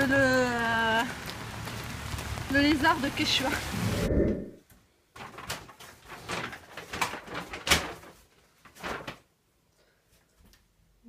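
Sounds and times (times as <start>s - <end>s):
paper bag rustling: 5.2s - 9.4s.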